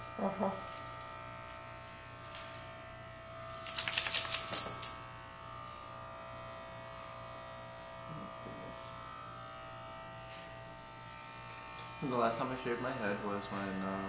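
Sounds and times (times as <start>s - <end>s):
clipper blades rasping on hair: 0.0s - 8.1s, 8.8s - 14.0s
electric hair clippers buzzing: 0.0s - 14.0s.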